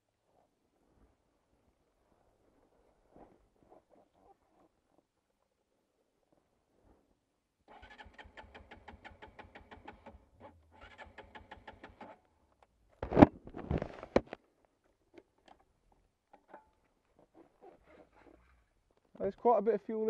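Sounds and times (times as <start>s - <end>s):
motorcycle starter cranking: 7.7s - 12.2s.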